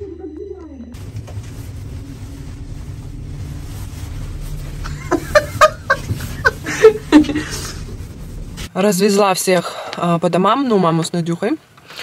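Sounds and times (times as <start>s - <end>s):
elevator humming: 1.0s - 8.7s
women laughing: 4.8s - 8.0s.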